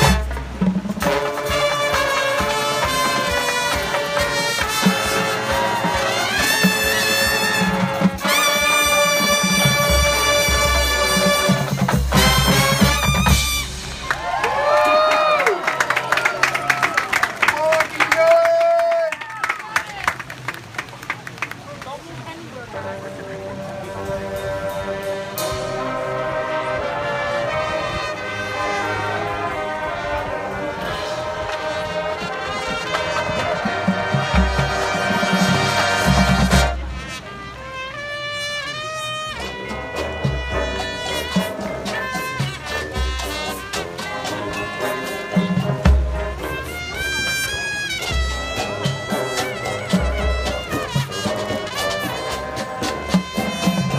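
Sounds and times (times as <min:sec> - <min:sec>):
drum strikes: 0:00.0 - 0:14.7
brass chords: 0:00.0 - 0:15.7, 0:22.5 - 0:53.9
mallet percussion: 0:40.0 - 0:53.9.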